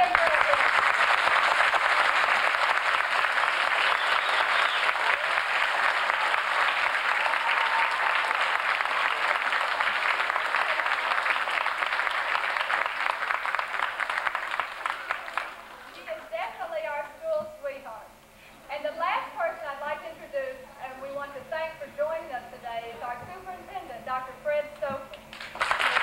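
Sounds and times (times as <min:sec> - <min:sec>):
audience applause: 0:00.0 - 0:16.0, 0:25.3 - 0:26.0.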